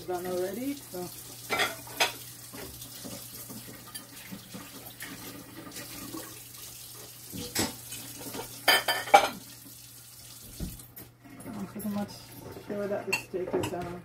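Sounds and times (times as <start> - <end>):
vegetables sizzling in frying pan: 0.0 - 5.0
pots and dishes clattering: 1.3 - 6.4, 7.2 - 9.5, 12.3 - 14.0.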